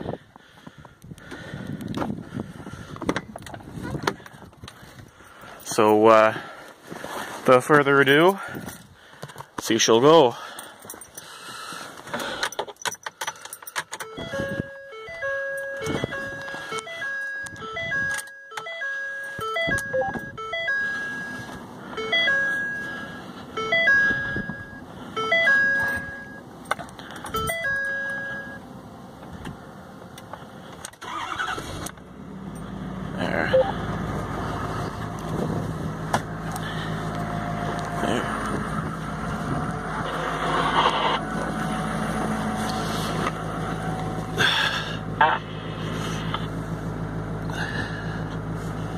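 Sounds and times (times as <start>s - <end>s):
diesel engine idling: 0.0s - 12.6s, 13.3s - 48.9s
diesel engine cranking and starting: 0.0s - 48.9s
dashboard chime: 14.0s - 26.4s, 27.3s - 28.6s.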